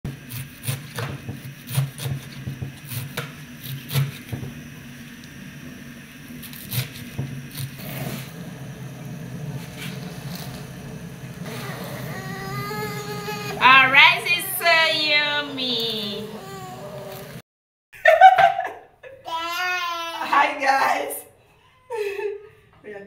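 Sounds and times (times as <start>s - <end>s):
knife chopping on wooden board: 0.1s - 4.6s, 6.5s - 7.7s.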